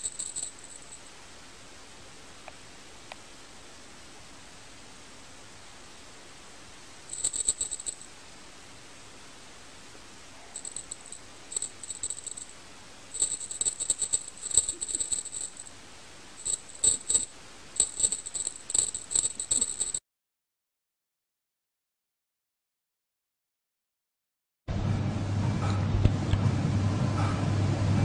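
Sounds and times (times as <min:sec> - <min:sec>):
small jingle bell shaken: 0:00.0 - 0:01.1, 0:07.1 - 0:08.1, 0:10.6 - 0:15.7, 0:16.4 - 0:20.0
steady hiss: 0:00.0 - 0:18.8.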